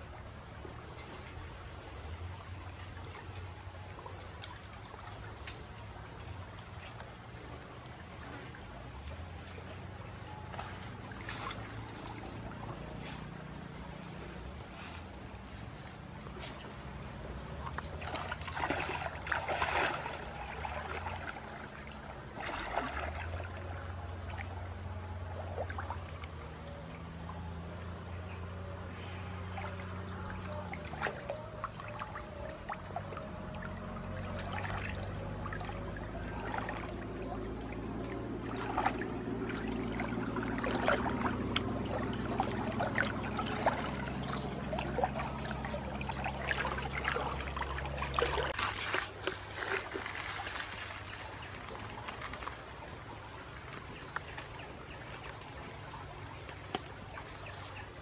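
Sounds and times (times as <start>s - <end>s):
high insect drone: 0.0s - 58.0s
water splashing from wading: 0.0s - 58.0s.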